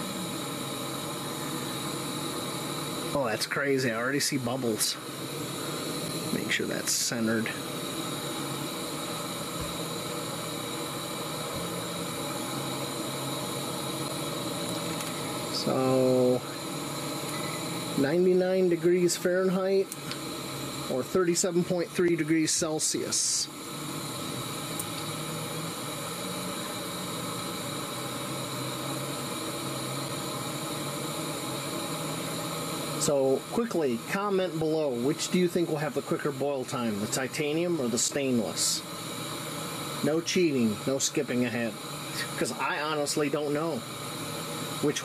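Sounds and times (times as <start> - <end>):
gas stove burner hissing: 0.0 - 45.0.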